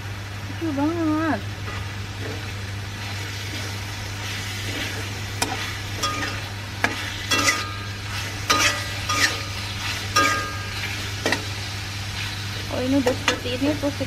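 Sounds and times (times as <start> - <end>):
faint frying sizzle: 0.0 - 14.0
metal spatula scraping a wok: 3.0 - 11.5.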